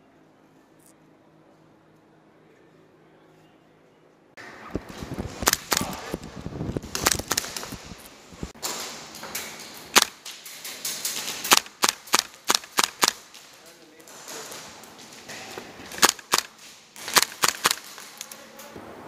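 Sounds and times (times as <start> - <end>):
airsoft gun shots: 4.7 - 6.2, 9.9 - 10.3, 11.2 - 13.4, 15.9 - 18.1.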